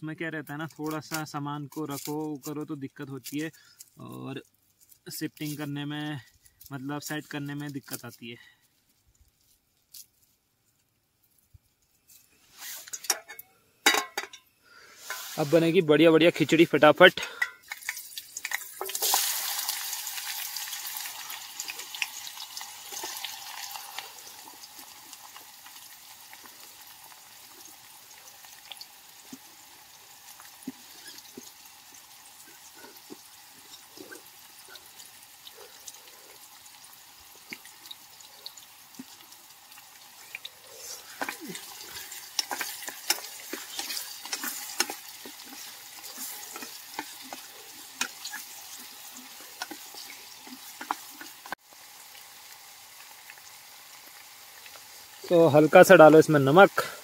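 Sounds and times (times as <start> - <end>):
onions sizzling in hot oil: 12.5 - 57.0
wooden spoon stirring a pot: 20.3 - 51.6.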